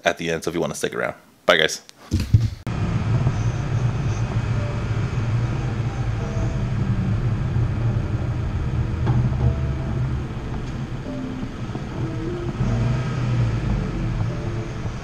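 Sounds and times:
truck engine and road noise: 0:02.7 - 0:15.0.

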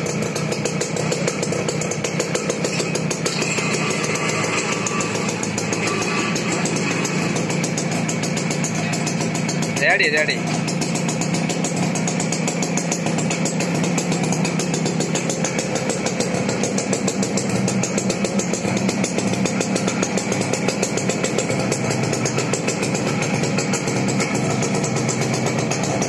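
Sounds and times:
small tractor engine running: 0:00.0 - 0:26.0.

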